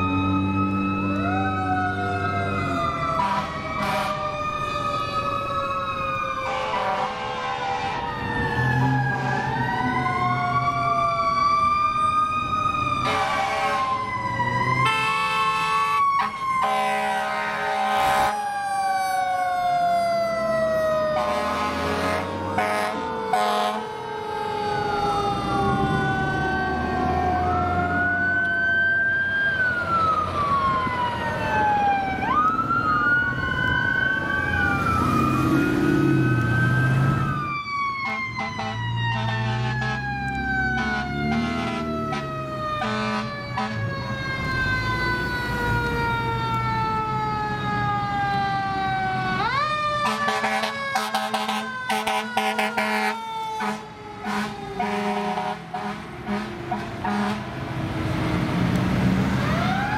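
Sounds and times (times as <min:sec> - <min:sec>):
siren short blasts: 0:00.0 - 0:11.5, 0:12.7 - 0:28.0, 0:34.6 - 0:46.2, 0:48.1 - 0:57.4
fire truck sirens wailing: 0:00.0 - 0:59.9.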